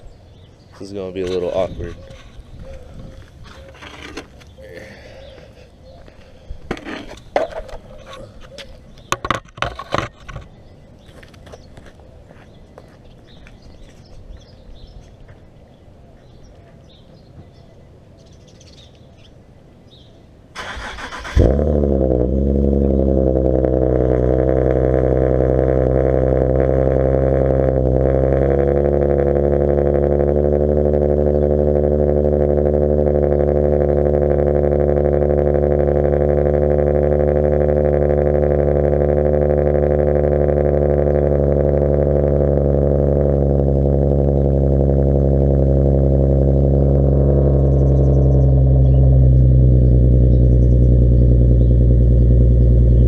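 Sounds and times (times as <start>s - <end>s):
car engine idling: 20.6s - 53.0s.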